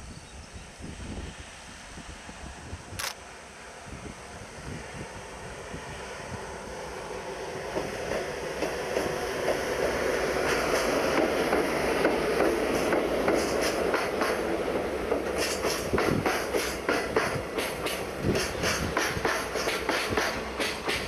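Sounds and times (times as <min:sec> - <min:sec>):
freight train rolling past: 0:00.0 - 0:21.0
wheels clacking over rail joints: 0:07.7 - 0:21.0
train brakes grinding: 0:15.1 - 0:21.0.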